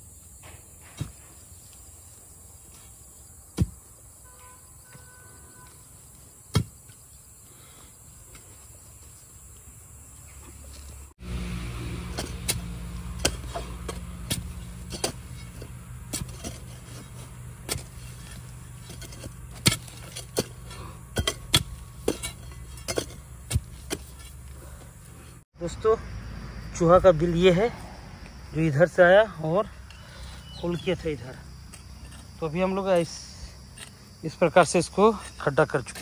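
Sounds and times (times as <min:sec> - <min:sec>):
digging tool striking hard ground: 0:03.6 - 0:03.8, 0:11.9 - 0:24.5
low motor hum: 0:11.2 - 0:27.3.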